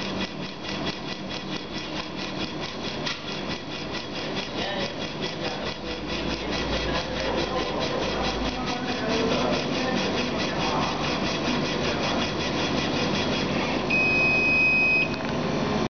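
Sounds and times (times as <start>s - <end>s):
laser engraver head moving: 0.0s - 15.3s
steady high tone: 13.8s - 15.2s.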